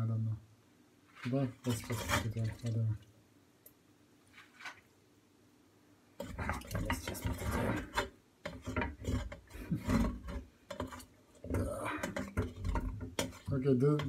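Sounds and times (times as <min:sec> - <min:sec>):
utensil scraping steel pot: 0:01.1 - 0:02.8, 0:06.2 - 0:14.0.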